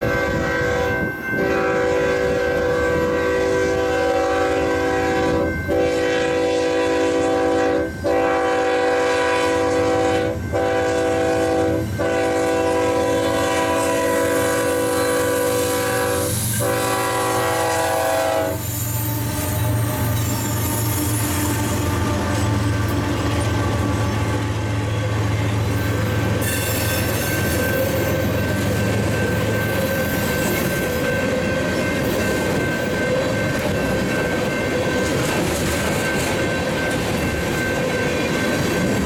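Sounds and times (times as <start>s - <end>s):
locomotive air horn blasts: 0.0s - 22.8s
rail clatter: 10.0s - 39.0s.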